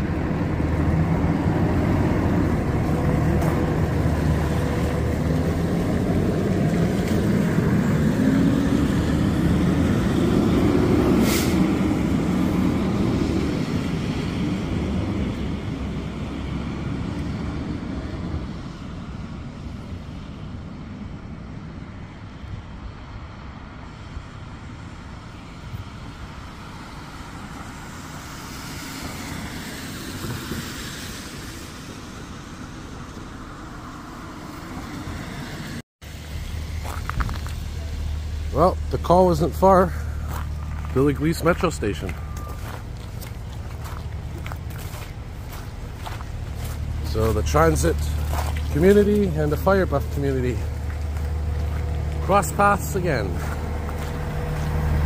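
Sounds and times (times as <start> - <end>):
diesel truck engine accelerating: 0.0 - 55.0
distant traffic: 0.0 - 55.0
short hiss: 11.2 - 11.6.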